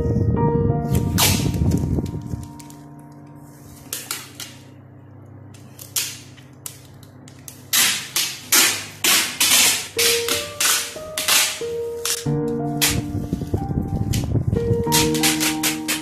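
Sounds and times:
background music: 0:00.0 - 0:04.1, 0:09.5 - 0:16.0
packing tape ripping: 0:01.0 - 0:02.8, 0:05.6 - 0:13.1, 0:14.8 - 0:16.0.

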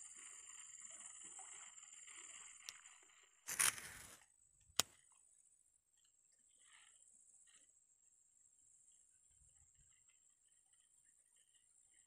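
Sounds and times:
crunching rustle: 0:03.5 - 0:04.2.

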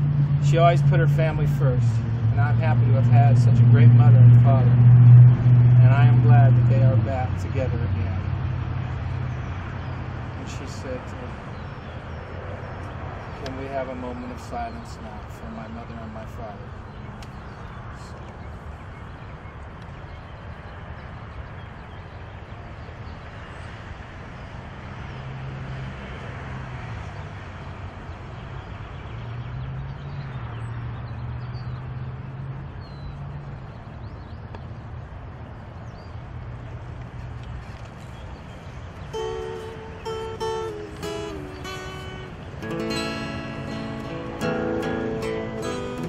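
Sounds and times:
passing motor vehicle drone: 0:00.0 - 0:13.9, 0:38.7 - 0:46.0.

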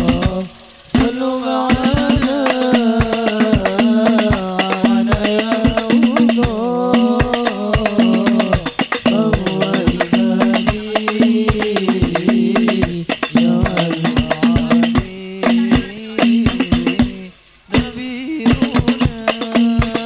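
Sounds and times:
frame drums playing fast rhythm: 0:00.0 - 0:20.0
held melody line: 0:00.0 - 0:20.0.

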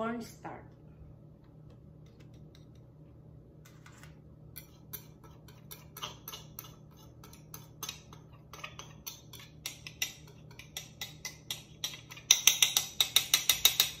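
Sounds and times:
metal utensil tapping ceramic bowl: 0:04.6 - 0:14.0.

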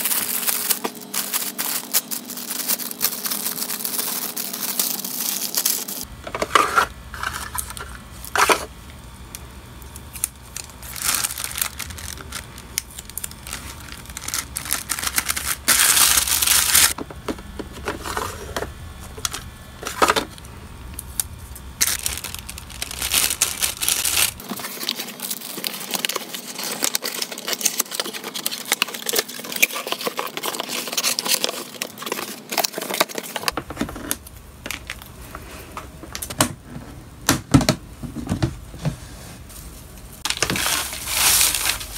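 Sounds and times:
plastic packaging crinkling: 0:00.0 - 0:08.7, 0:09.7 - 0:17.0, 0:21.0 - 0:35.2, 0:40.2 - 0:41.9.

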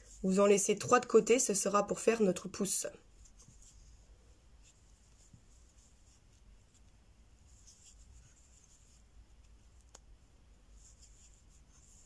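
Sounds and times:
crochet hook scratching yarn: 0:03.0 - 0:12.0.

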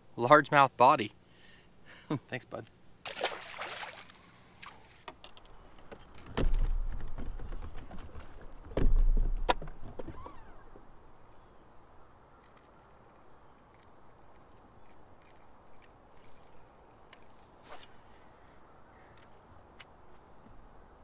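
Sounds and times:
brief scrape: 0:17.4 - 0:18.1.

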